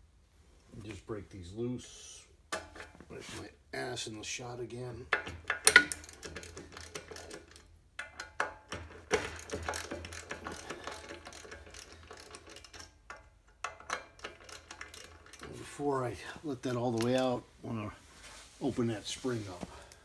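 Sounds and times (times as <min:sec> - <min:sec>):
ratchet wrench clicking: 0:05.5 - 0:15.5.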